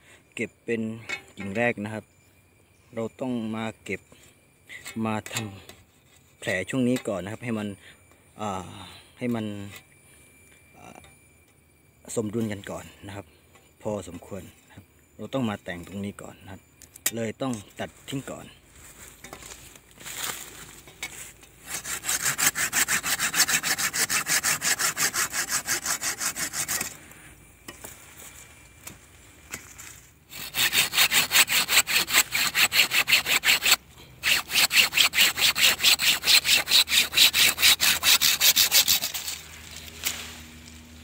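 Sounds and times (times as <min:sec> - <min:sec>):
hand saw cutting branch: 0:21.0 - 0:27.0, 0:30.3 - 0:40.7.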